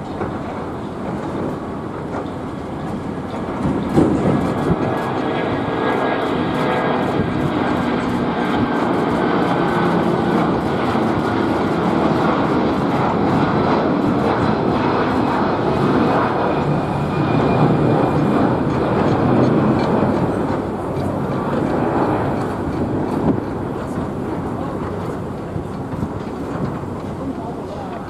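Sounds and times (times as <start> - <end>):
jet engine rumble: 0.0 - 28.0.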